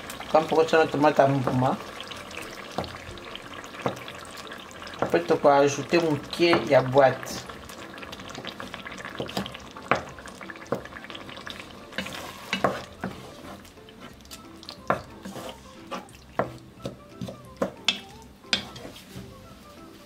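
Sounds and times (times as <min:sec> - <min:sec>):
vegetables sizzling: 0:00.0 - 0:20.0
wooden spoon scraping a pot: 0:08.0 - 0:10.1, 0:10.7 - 0:19.4.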